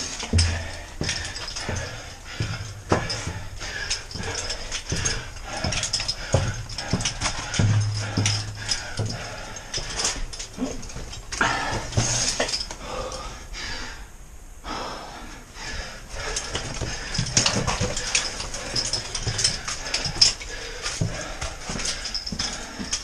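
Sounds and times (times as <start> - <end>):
footsteps on rocks: 0.0 - 12.7, 16.4 - 23.0
knocks and clinks: 0.0 - 12.8, 16.3 - 23.0
person breathing heavily: 0.0 - 23.0.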